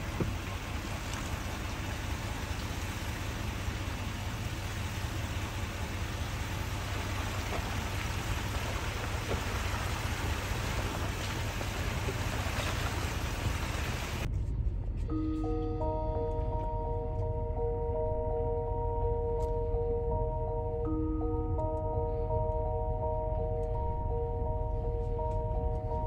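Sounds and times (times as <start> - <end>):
steady rain falling: 0.0 - 14.3.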